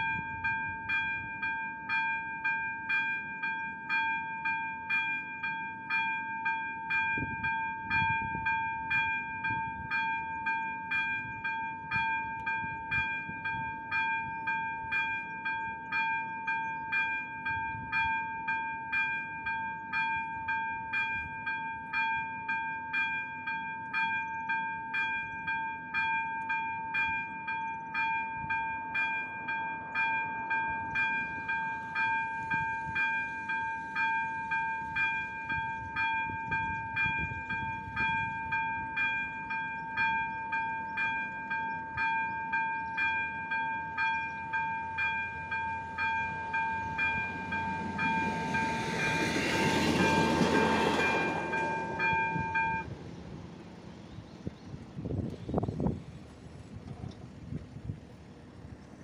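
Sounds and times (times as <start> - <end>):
level crossing bell ringing: 0.0 - 52.9
train rumbling past: 28.4 - 59.0.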